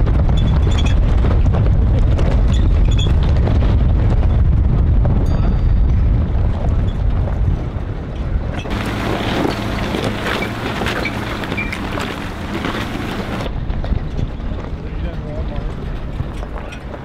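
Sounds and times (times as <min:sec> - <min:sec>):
truck engine and tyres rumbling: 0:00.0 - 0:17.0
stones crunching under tyres: 0:08.6 - 0:13.9.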